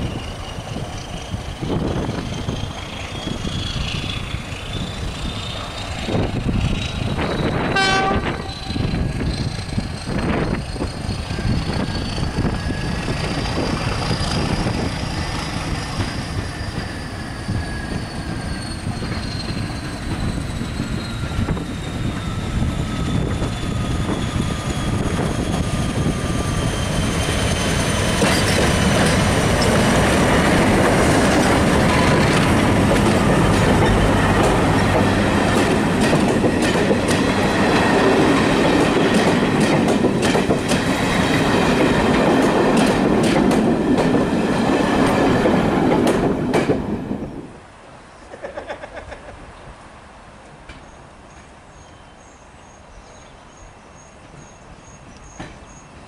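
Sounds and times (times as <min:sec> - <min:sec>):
diesel locomotive passing: 0:00.0 - 0:56.0
wheels clicking over rail joints: 0:27.5 - 0:46.9.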